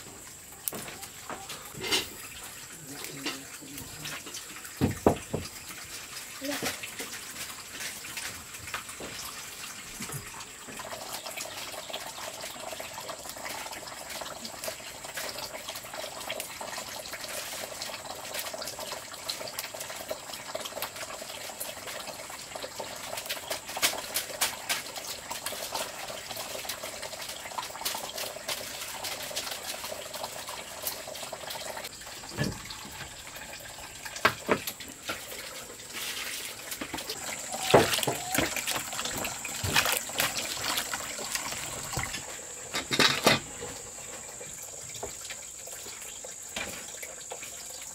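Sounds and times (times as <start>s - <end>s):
running water: 0.0s - 47.9s.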